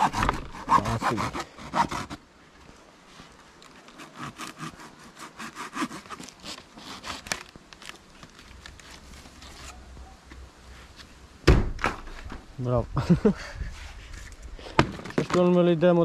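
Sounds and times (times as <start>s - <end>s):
handsaw cutting wood: 0.0s - 2.2s, 3.9s - 7.4s
loud thump: 11.4s - 12.1s.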